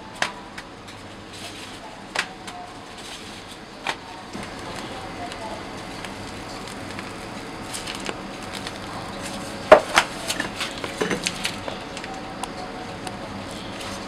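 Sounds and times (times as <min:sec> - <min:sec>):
steady background noise: 0:00.0 - 0:14.0
kitchen utensils clinking: 0:09.1 - 0:12.8.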